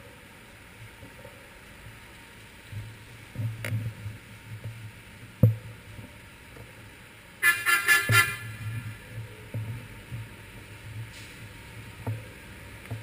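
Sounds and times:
bicycle riding: 0:00.0 - 0:13.0
muffled street traffic rumble: 0:00.0 - 0:13.0
vehicle horn honking: 0:07.4 - 0:08.6.

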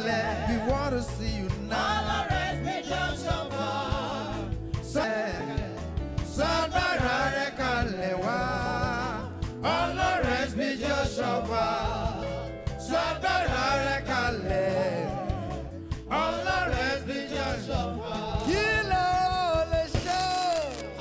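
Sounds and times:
man singing into a microphone: 0:00.0 - 0:01.7, 0:04.8 - 0:06.8, 0:07.5 - 0:09.7, 0:14.0 - 0:15.7, 0:17.3 - 0:20.9
instrumental backing: 0:00.0 - 0:21.0.

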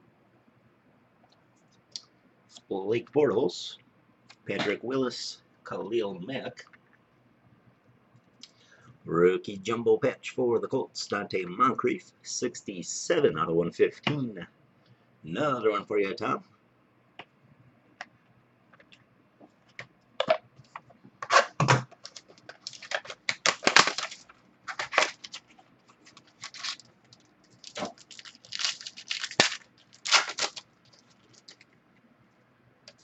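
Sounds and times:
cards being handled: 0:21.2 - 0:31.7
plastic packaging crinkling and tearing: 0:21.3 - 0:31.8.

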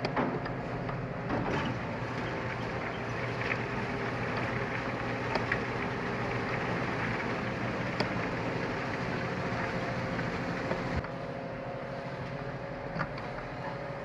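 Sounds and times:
wood chipper chipping log: 0:00.0 - 0:11.0.

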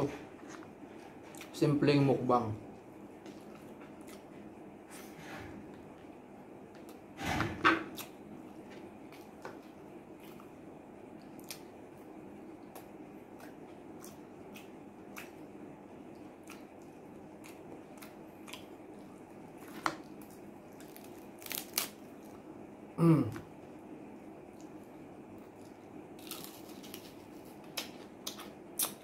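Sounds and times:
chewing with crunches: 0:03.2 - 0:04.6, 0:07.9 - 0:22.5
fried chicken crackling torn apart: 0:20.8 - 0:22.0.

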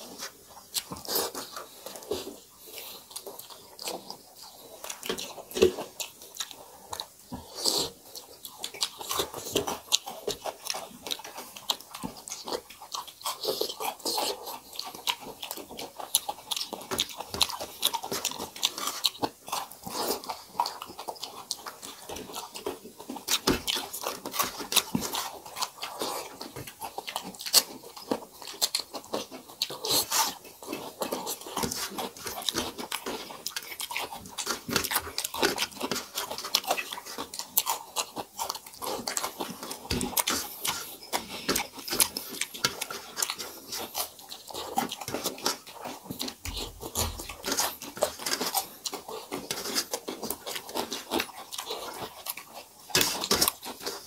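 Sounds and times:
wet chewing and lip-smacking: 0:00.0 - 0:54.0.

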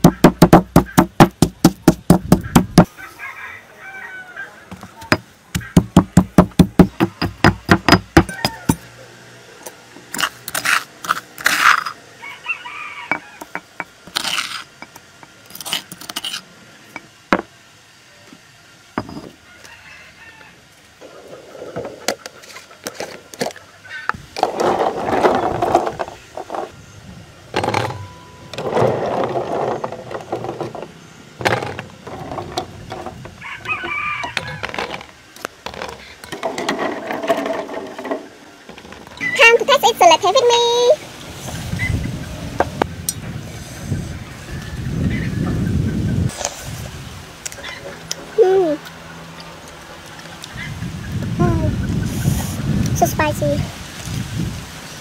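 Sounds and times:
stone pestle pounding in mortar: 0:00.0 - 0:02.9, 0:05.1 - 0:08.6.

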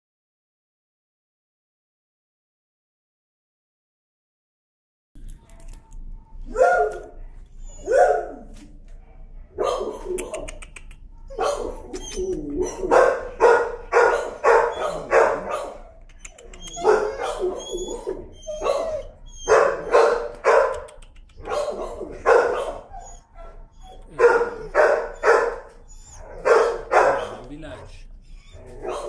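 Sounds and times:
dog barking: 0:06.5 - 0:10.6, 0:11.3 - 0:27.9, 0:28.7 - 0:29.0.

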